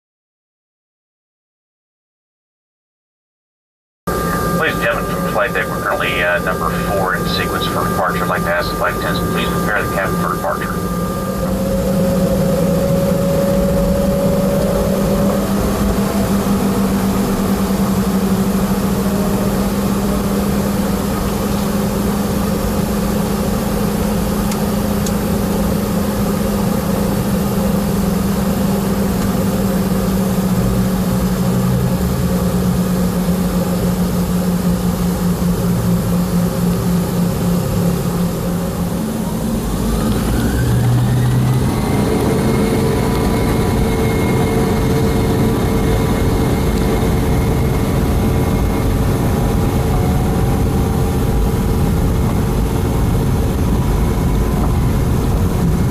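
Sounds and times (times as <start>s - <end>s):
jet engines idling: 4.1s - 55.9s
jet engines spooling up: 4.1s - 55.9s.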